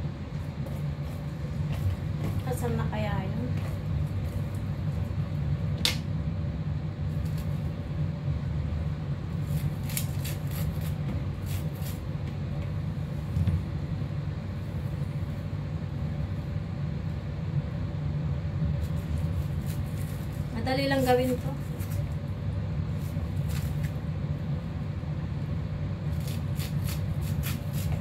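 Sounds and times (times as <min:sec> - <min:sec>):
low hum: 0:00.0 - 0:26.3
knife cutting corn kernels: 0:09.5 - 0:12.0, 0:26.1 - 0:28.0.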